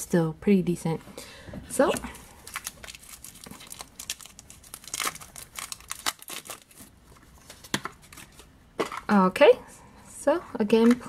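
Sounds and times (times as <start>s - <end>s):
cardboard and plastic crinkling: 1.8s - 9.2s.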